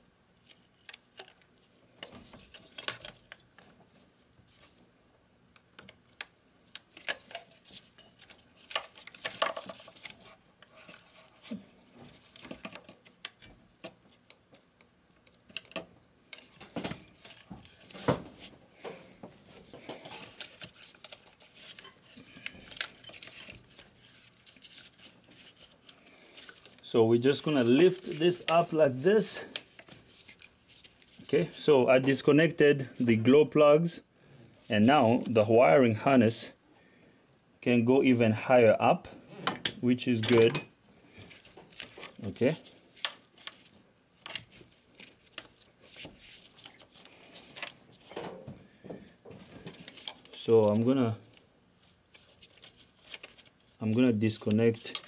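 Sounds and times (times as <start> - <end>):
gloved hands rustling: 16.2 - 32.2, 41.0 - 55.0.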